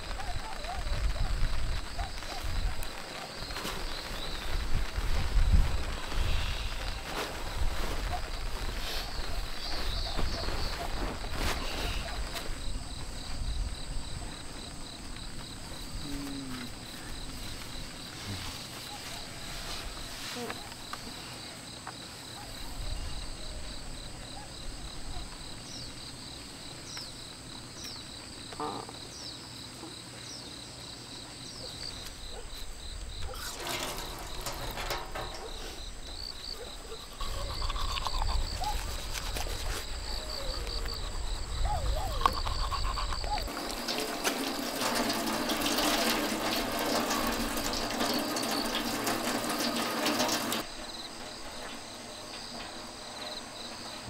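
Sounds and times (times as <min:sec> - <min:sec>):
insects chirping: 0:00.0 - 0:54.0
water running into metal sink: 0:33.3 - 0:35.9, 0:43.5 - 0:50.7.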